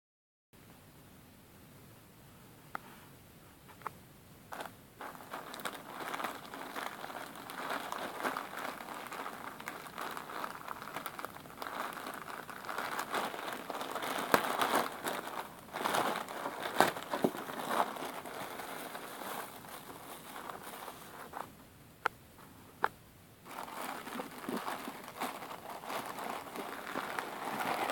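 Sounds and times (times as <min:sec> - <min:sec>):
plastic bags crinkling: 0:04.5 - 0:21.5, 0:23.5 - 0:27.9.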